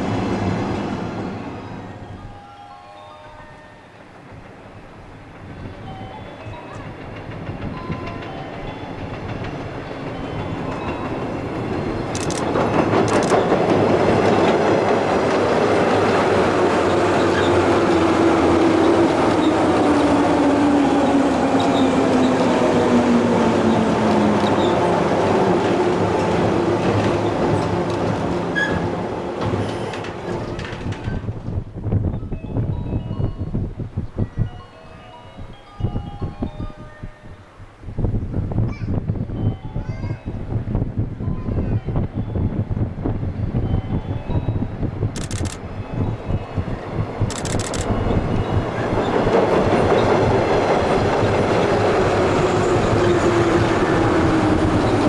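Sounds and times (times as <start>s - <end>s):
electric train passing: 0.0s - 41.2s, 41.9s - 55.0s
wheels clattering over rail joints: 3.9s - 31.7s, 47.9s - 55.0s.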